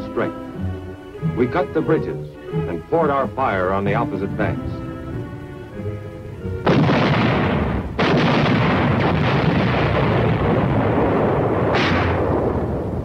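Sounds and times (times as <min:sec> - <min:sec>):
heavy rolling rumble: 0:01.2 - 0:13.0
artillery blasts: 0:06.6 - 0:13.0.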